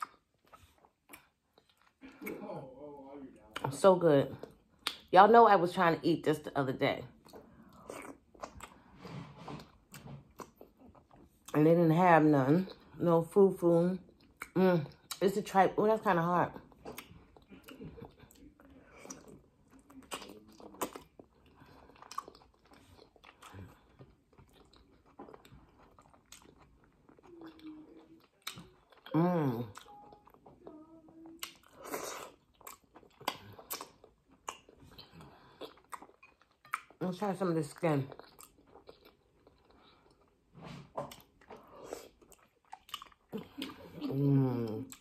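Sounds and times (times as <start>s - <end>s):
person chewing tough food: 0.0s - 2.5s, 7.1s - 11.6s, 16.6s - 37.0s, 37.8s - 45.0s
wet mouth clicks and smacks: 4.8s - 5.1s.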